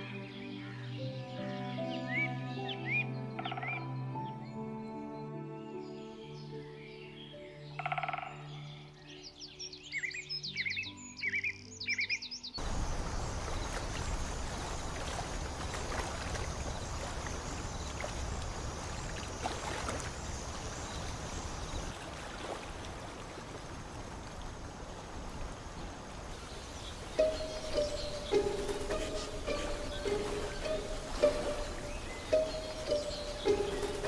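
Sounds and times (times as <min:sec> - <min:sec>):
soft music: 0:00.0 - 0:13.2, 0:26.4 - 0:34.0
bird chirping: 0:00.0 - 0:13.7, 0:26.4 - 0:34.0
water rushing: 0:12.6 - 0:34.0.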